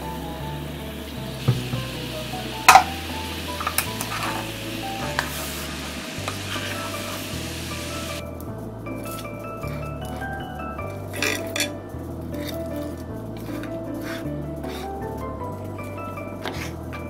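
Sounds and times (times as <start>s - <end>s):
sauce bubbling and sizzling: 0.0s - 17.0s
wooden spoon knocking pan: 1.5s - 2.1s, 2.7s - 3.0s.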